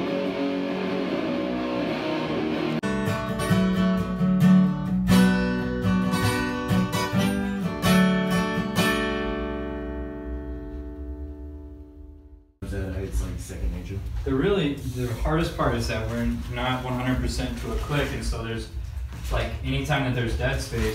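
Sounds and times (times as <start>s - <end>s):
distorted electric guitar: 0.0s - 12.2s
acoustic guitar strumming: 0.0s - 12.4s.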